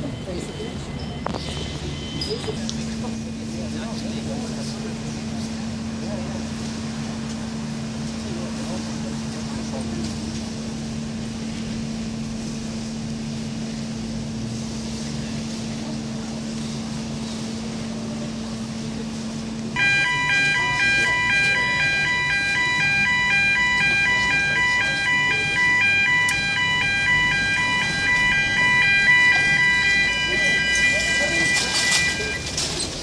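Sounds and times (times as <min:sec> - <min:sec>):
two-tone warning alarm: 0:19.8 - 0:32.7.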